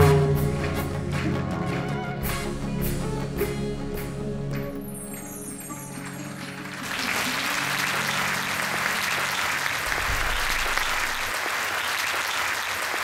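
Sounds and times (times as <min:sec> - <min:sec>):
large crowd applauding: 0:00.0 - 0:02.6, 0:05.7 - 0:13.0.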